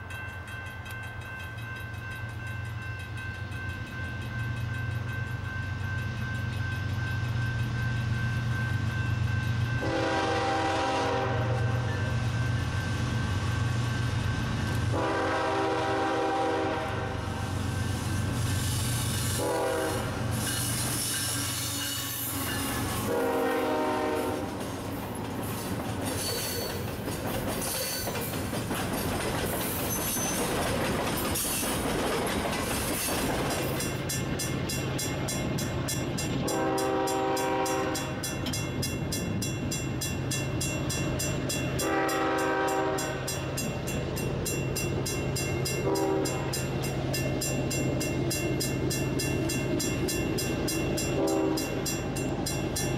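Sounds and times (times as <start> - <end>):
crossing bell ringing: 0.0 - 18.6, 19.2 - 28.4, 33.6 - 52.9
low rumble of locomotive engine: 0.0 - 52.9
distant train horn: 9.7 - 12.3, 14.8 - 17.6, 19.3 - 24.6, 36.4 - 38.4, 41.8 - 43.4, 45.8 - 46.7, 51.0 - 52.0
locomotive horn: 9.8 - 12.1, 14.9 - 17.4, 19.3 - 20.2, 21.4 - 24.5, 36.4 - 38.2, 41.8 - 43.3, 45.8 - 46.6, 51.2 - 51.8.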